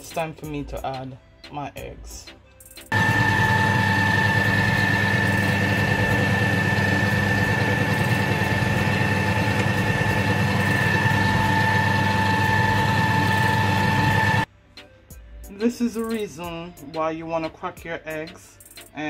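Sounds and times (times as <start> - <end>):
stand mixer motor whine: 2.9 - 14.5.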